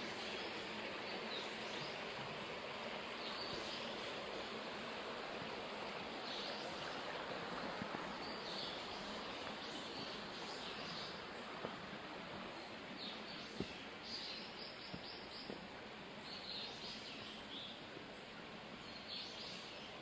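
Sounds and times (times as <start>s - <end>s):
stream babbling over gravel: 0.0s - 16.2s.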